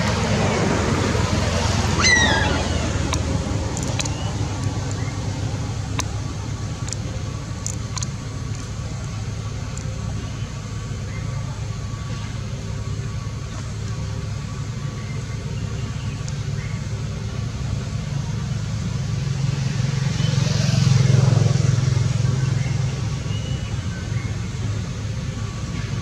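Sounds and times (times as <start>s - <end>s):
low background rumble: 0.0s - 20.1s, 20.8s - 26.0s
sharp clicks: 2.8s - 9.9s.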